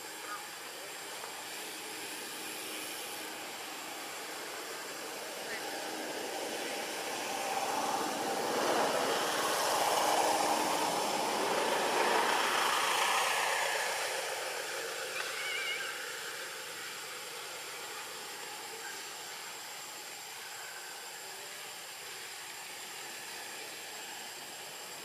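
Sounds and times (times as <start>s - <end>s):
vehicle passing by: 5.6s - 15.1s.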